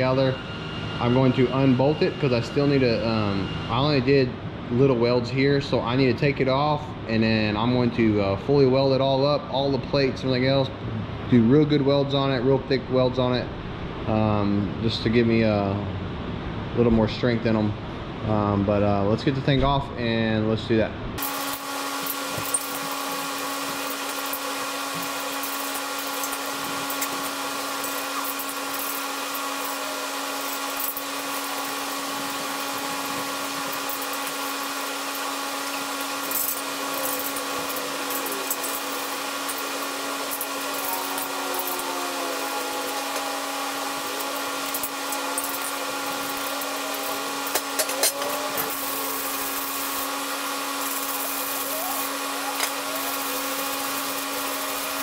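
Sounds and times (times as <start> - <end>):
electric motor hum: 21.2 - 55.0.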